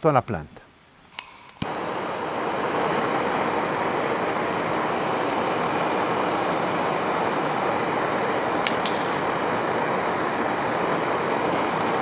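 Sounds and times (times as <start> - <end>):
torch igniter click: 1.1 - 2.0, 6.9 - 12.0
gas torch hissing: 1.1 - 12.0.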